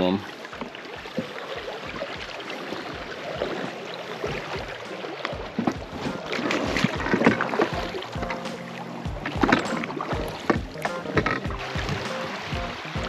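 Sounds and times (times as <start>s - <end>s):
water sloshing around boat: 0.0s - 13.0s
music: 1.8s - 13.0s
knocks against boat: 3.0s - 12.8s.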